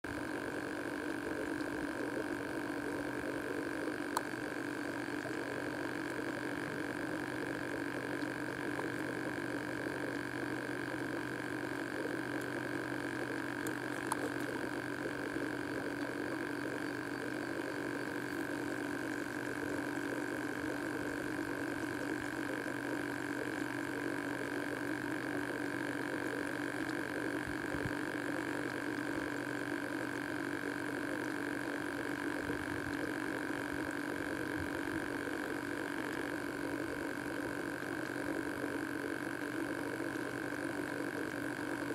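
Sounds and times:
steady two-pitch hum: 0.0s - 41.9s
faint clicks: 4.1s - 4.4s, 13.6s - 14.6s.

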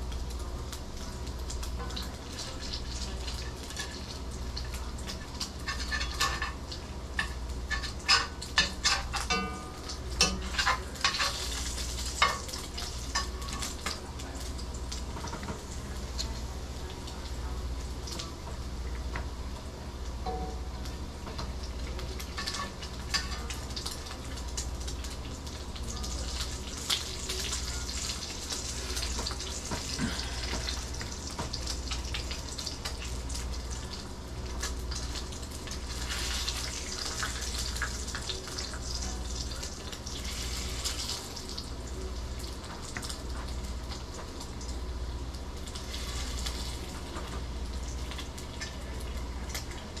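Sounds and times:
bacon sizzling in a skillet: 0.0s - 50.0s.

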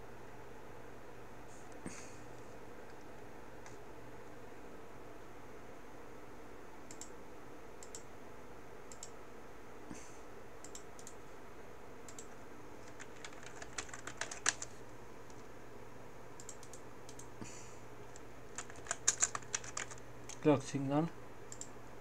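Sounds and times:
computer mouse clicks: 6.9s - 7.2s, 7.8s - 8.1s, 8.9s - 9.2s, 10.6s - 11.2s, 12.1s - 14.7s, 16.4s - 17.3s, 21.5s - 21.7s
keyboard keystrokes: 12.1s - 14.7s, 18.1s - 20.4s.

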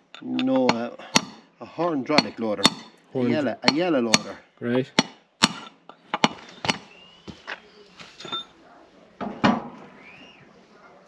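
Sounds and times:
hammer tapping on metal: 2.1s - 2.9s.

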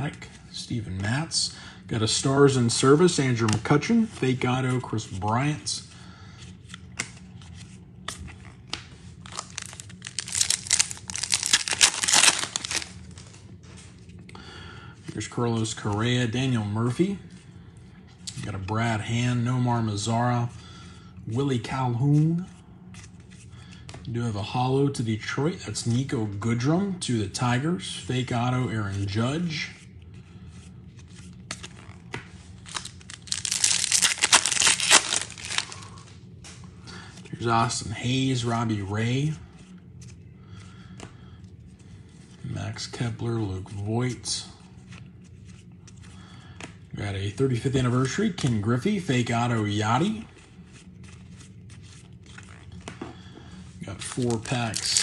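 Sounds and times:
trading cards being shuffled: 6.6s - 14.1s, 30.6s - 36.6s, 44.8s - 53.3s, 53.9s - 55.0s
foil wrapper crinkling and tearing: 9.2s - 13.2s, 32.7s - 36.0s, 54.0s - 55.0s.

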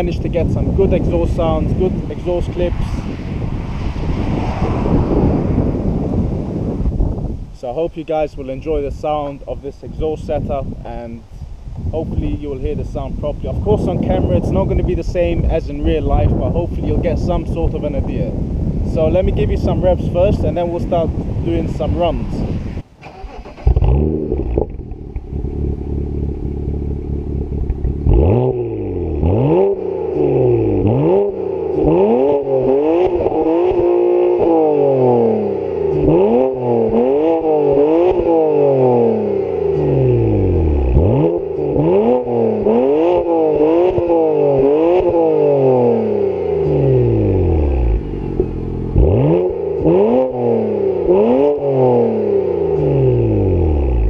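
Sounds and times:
car engine revving: 0.0s - 7.4s, 18.9s - 54.0s
exhaust cracks: 0.0s - 54.0s.

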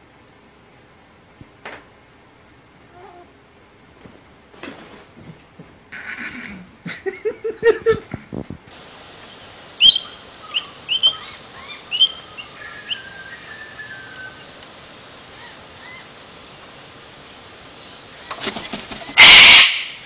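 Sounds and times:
rapid animal vocal sounds: 5.9s - 6.9s
bird chirping: 9.2s - 14.6s.

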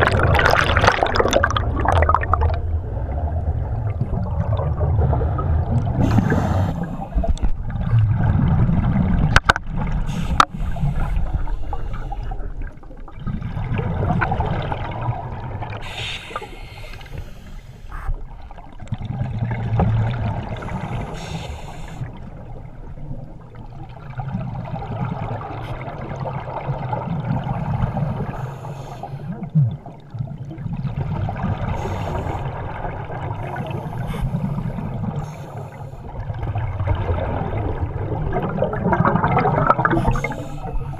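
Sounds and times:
exhaled bubbles gurgling: 0.0s - 40.9s
diver regulator breathing: 6.0s - 7.3s, 15.8s - 18.2s, 20.6s - 22.1s, 28.1s - 29.3s, 31.7s - 32.6s, 33.6s - 36.1s, 39.9s - 40.9s.

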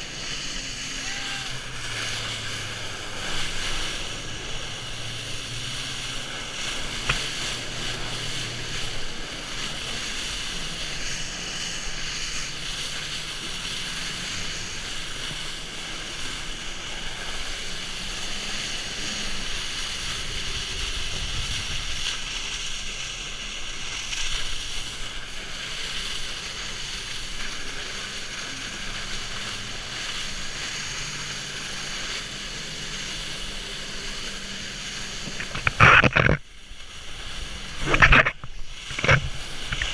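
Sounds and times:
jet ski engine hum: 0.0s - 39.9s
water jets rushing: 0.0s - 39.9s
wind on microphone: 19.2s - 23.0s.

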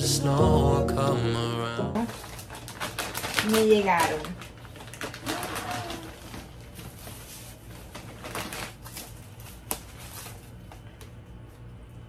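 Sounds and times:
plastic bag rustling and crinkling: 2.0s - 11.0s.

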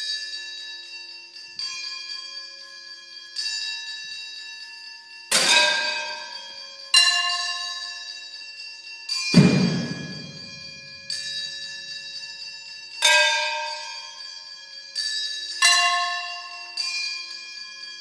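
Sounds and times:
struck metal percussion ringing: 5.3s - 5.9s, 9.4s - 11.0s
deep thud: 9.4s - 10.8s.

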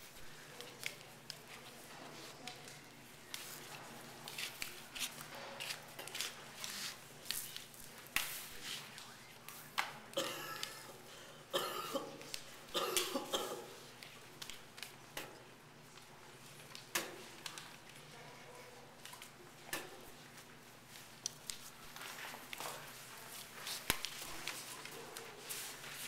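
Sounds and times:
person coughing: 10.1s - 13.8s.

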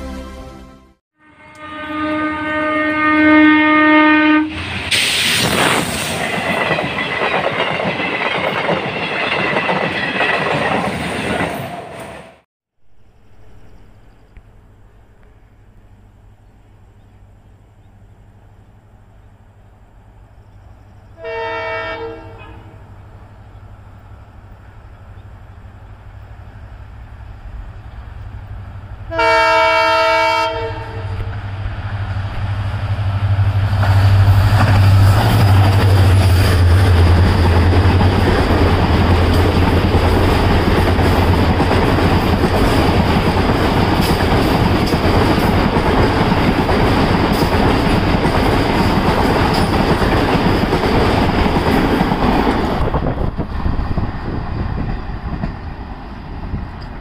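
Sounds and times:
locomotive horn blasts: 0.0s - 4.7s, 21.2s - 22.8s, 29.1s - 31.3s
train wheels clacking over rail joints: 33.8s - 53.0s.

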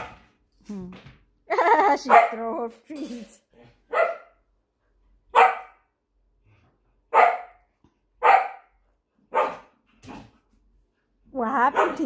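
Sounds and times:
dog barking: 0.0s - 0.2s, 2.0s - 2.5s, 3.9s - 4.4s, 5.3s - 5.8s, 7.1s - 9.7s, 11.7s - 12.0s.

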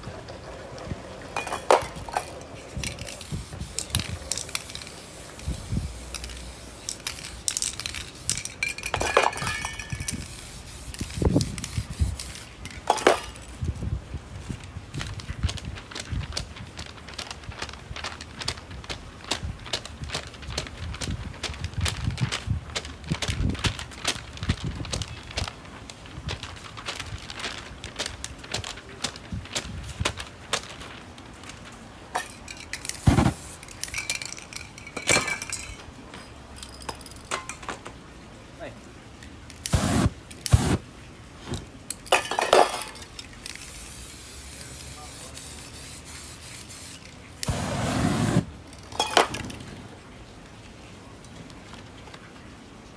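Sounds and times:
sticky paper pats and crackles: 14.4s - 31.8s
whoosh of ignited spray paint: 32.8s - 33.6s, 39.7s - 40.8s, 43.5s - 48.5s.

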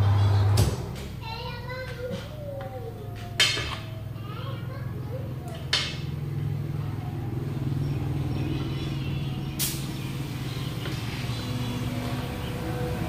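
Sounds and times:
low mechanical hum: 0.0s - 13.0s
compressed air blast from hose: 9.6s - 11.2s.

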